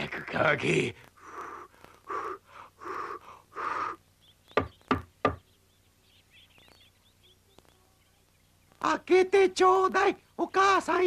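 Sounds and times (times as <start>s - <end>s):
breathy blowing puffs: 1.0s - 4.1s
faint bird chirps: 1.2s - 9.0s
knocks on wooden door: 4.6s - 5.4s.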